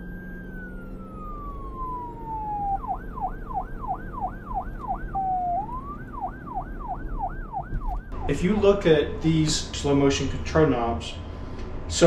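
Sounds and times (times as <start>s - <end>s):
electronic siren wailing and yelping: 0.0s - 8.6s.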